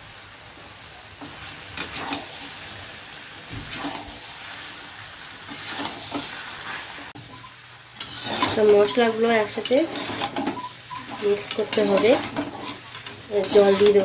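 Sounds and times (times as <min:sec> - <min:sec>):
vegetables sizzling in oil: 0:00.0 - 0:14.0
metal spatula scraping pan: 0:05.5 - 0:07.0, 0:08.0 - 0:14.0.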